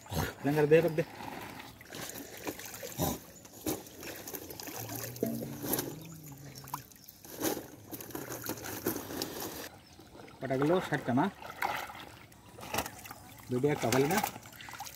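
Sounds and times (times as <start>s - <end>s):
fish thrashing in water: 1.0s - 9.7s, 11.2s - 14.9s
sharp splashes: 3.9s - 7.6s, 10.6s - 14.9s.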